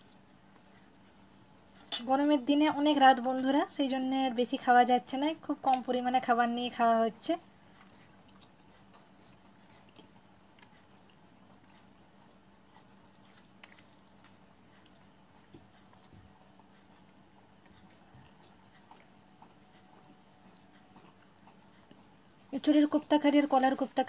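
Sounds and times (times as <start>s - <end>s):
faint room hum: 0.0s - 24.0s
faint chewing: 7.6s - 23.4s.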